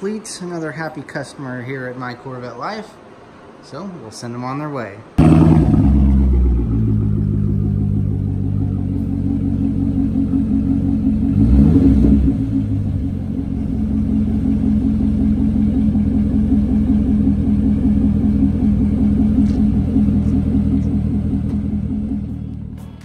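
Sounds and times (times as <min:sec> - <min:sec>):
sports car engine idling and revving: 0:05.2 - 0:23.0.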